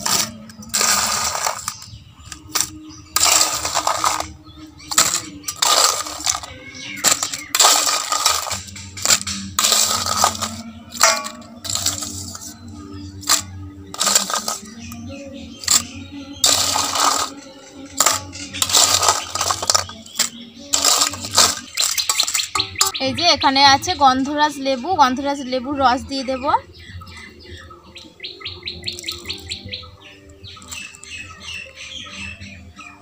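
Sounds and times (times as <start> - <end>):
ice clattering into plastic cups: 0.0 - 12.6, 13.2 - 23.0
spoon scraping ice from steel bowl: 0.0 - 12.6, 13.2 - 23.0.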